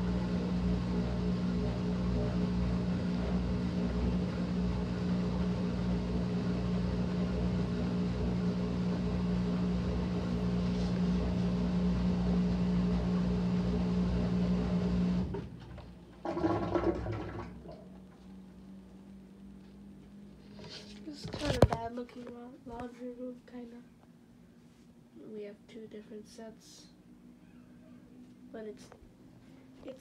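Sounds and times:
washing machine motor hum: 0.0 - 22.0.

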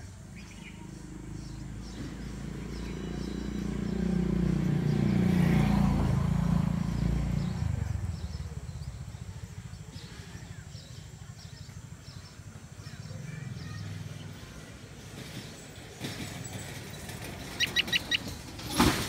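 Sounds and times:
faint bird chirps: 0.0 - 5.0
vehicle driving past: 0.4 - 19.0.

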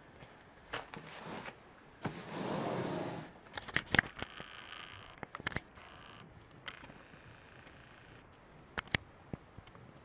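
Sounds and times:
laptop rustling scrape: 1.0 - 3.4.

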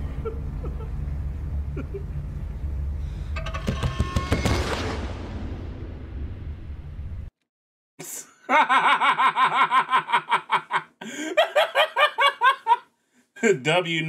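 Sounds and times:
man laughing hard: 1.7 - 2.2, 8.0 - 12.9.

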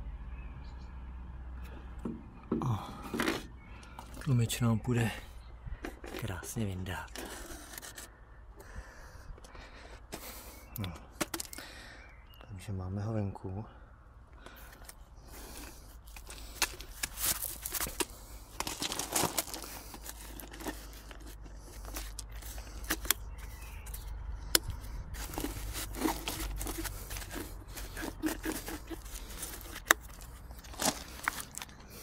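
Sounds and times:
rustling and scraping: 1.7 - 4.4, 5.2 - 8.2, 9.7 - 11.6, 14.5 - 32.0
clicks and knocks of handled part: 10.8 - 11.6.

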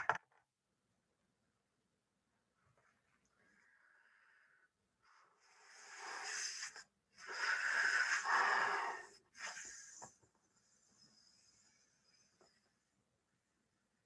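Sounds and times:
person blowing into rubber glove: 5.6 - 10.1.

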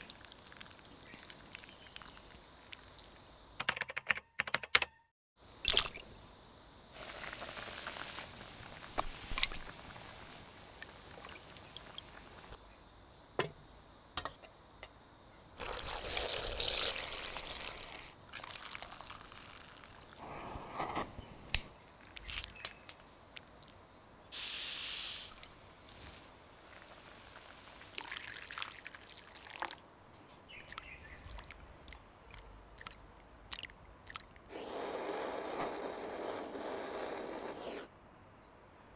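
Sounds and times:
water poured through strainer: 0.0 - 2.8, 15.6 - 20.1, 27.8 - 29.8
powder poured into water: 0.0 - 3.1, 7.0 - 12.4, 15.6 - 20.2, 25.8 - 29.8
fruit splashing in water: 5.7 - 6.1.

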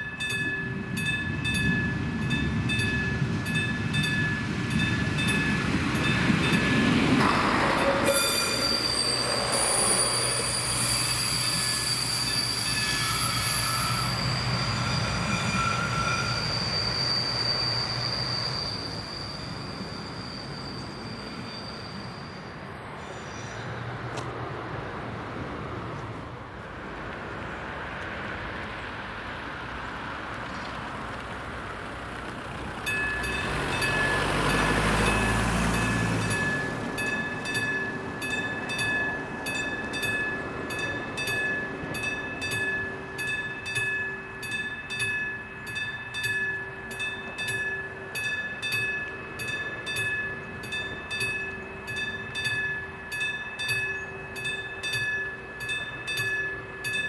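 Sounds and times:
level crossing warning bell: 0.0 - 22.8, 32.7 - 57.0.

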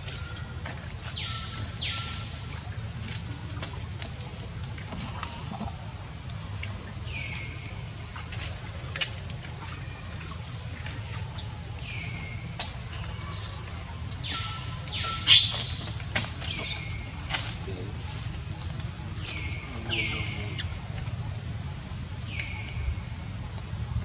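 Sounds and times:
macaques squeaking: 14.2 - 17.1
macaque high-pitched squeals: 14.3 - 16.9.

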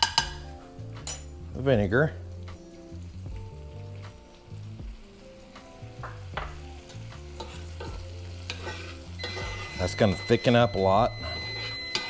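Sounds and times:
sauce sizzling in frying pan: 0.0 - 12.0
utensil scraping pan: 7.3 - 12.0.

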